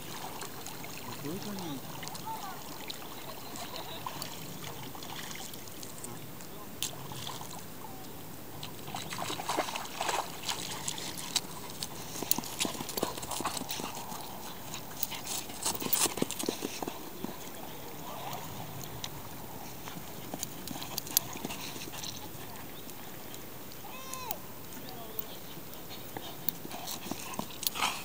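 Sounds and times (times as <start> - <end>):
dog paws galloping on grass: 8.6 - 23.9.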